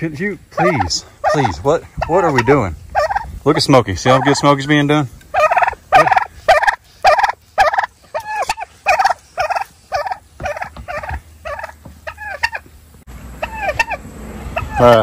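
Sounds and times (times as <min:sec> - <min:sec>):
fowl making harsh calls: 0:00.5 - 0:03.3, 0:05.3 - 0:12.6, 0:13.4 - 0:15.0.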